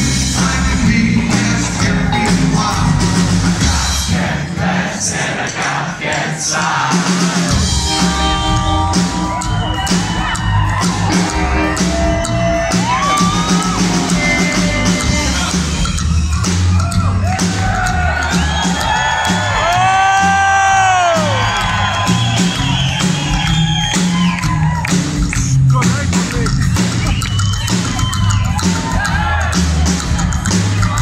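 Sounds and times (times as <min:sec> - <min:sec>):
rockabilly band playing live: 0:00.0 - 0:04.2, 0:06.9 - 0:31.0
crowd whooping and shouting: 0:07.4 - 0:25.6, 0:26.9 - 0:31.0.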